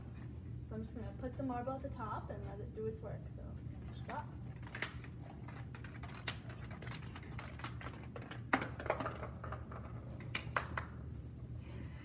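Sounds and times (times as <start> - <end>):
marble rolling and clicking: 4.6 - 10.8.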